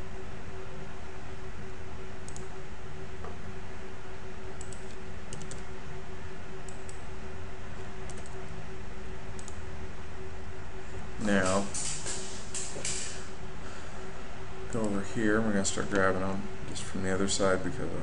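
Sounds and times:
steady hum and hiss: 0.0s - 18.0s
keyboard and mouse clicks: 4.6s - 5.6s, 8.1s - 8.4s.

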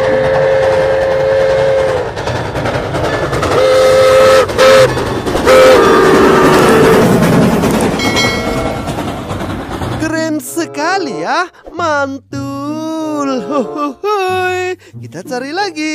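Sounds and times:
steam whistle blasts: 0.0s - 2.1s, 3.6s - 4.9s, 5.5s - 7.1s
train rumbling past: 0.0s - 12.3s.

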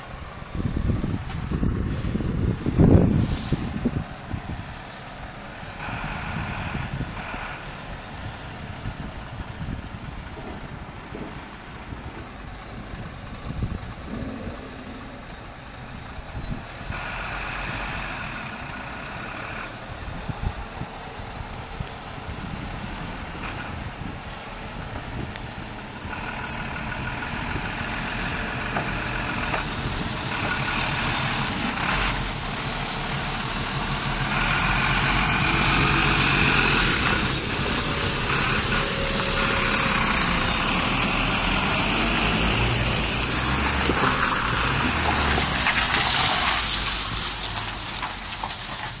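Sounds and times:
truck diesel engine driving past: 0.0s - 49.0s
turbocharger whistle: 33.0s - 42.7s.

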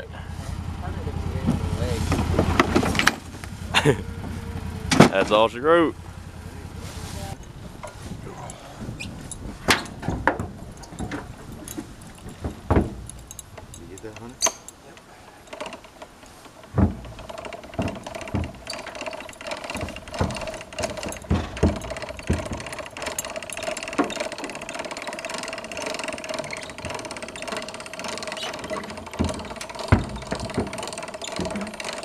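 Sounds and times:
engine running: 0.0s - 32.0s
metal gear knocks and clanks: 16.6s - 32.0s.

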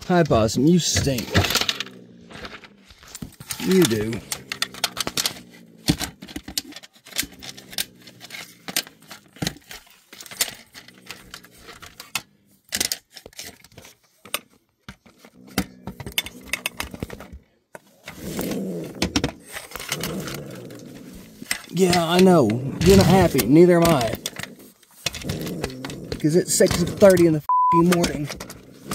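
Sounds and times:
low rasping sound: 0.6s - 12.7s.

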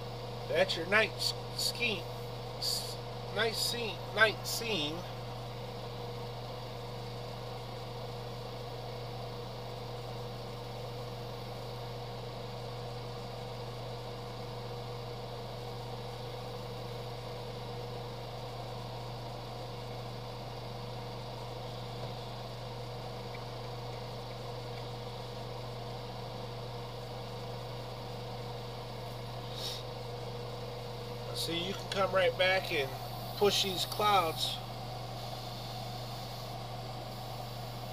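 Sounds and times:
whirring hiss: 0.0s - 9.8s, 18.0s - 37.9s
electric motor humming: 19.8s - 37.9s.

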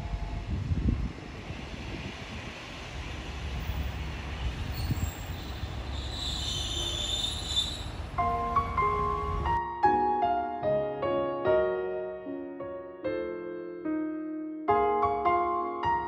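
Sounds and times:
diesel railcar rumbling: 0.0s - 9.6s
high brake squeal: 4.7s - 8.1s.

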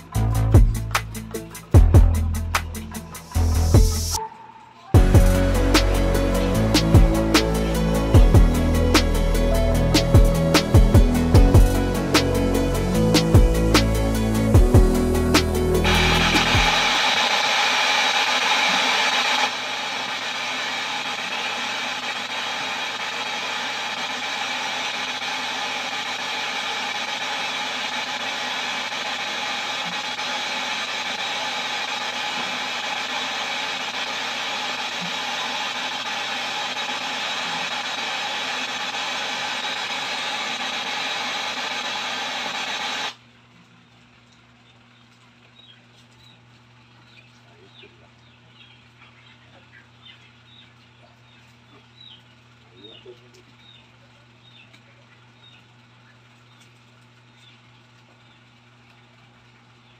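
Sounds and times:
low steady hum: 3.4s - 17.2s
tv static hiss: 4.8s - 43.2s.

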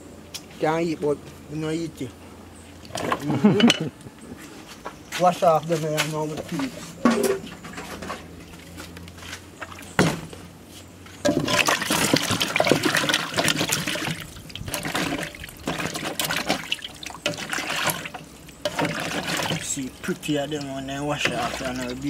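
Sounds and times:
hands splashing water in metal basin: 11.3s - 22.0s.

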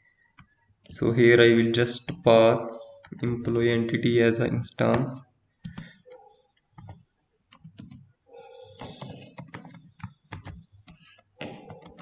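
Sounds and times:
keyboard typing: 2.1s - 3.7s, 4.8s - 12.0s.

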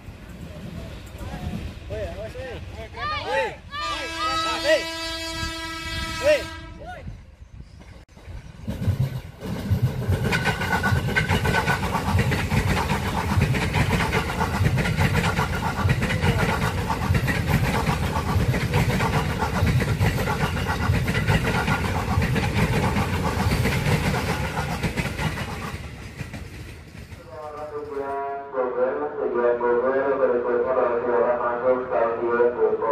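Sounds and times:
train wheels rolling on rails: 0.0s - 3.0s, 7.7s - 28.3s
train whine: 0.0s - 32.9s.

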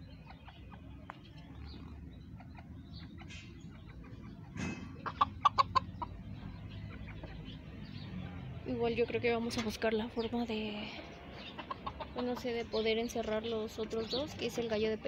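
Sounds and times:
chickens clucking: 0.0s - 15.0s.

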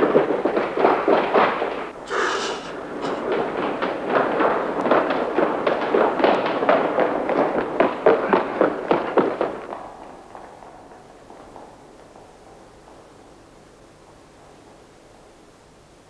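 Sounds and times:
running footsteps on hard floor: 0.0s - 14.9s.

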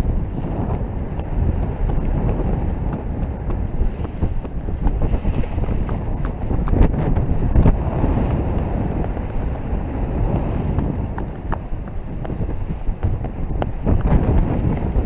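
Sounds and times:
wind rumbling over microphone: 0.0s - 15.0s.

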